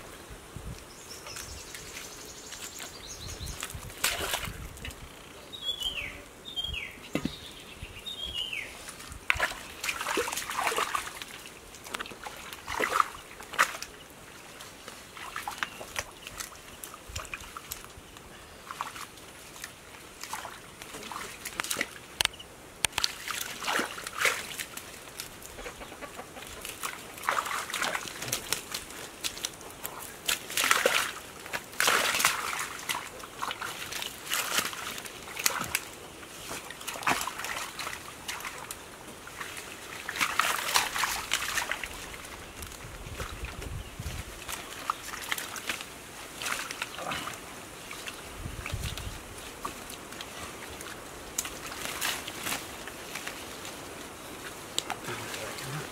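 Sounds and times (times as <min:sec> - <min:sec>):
bare feet stepping in mud: 0:01.3 - 0:04.9, 0:08.8 - 0:14.0, 0:22.9 - 0:55.9
hands sloshing through mud: 0:01.9 - 0:04.7, 0:08.8 - 0:17.9, 0:18.6 - 0:22.0, 0:22.9 - 0:55.9.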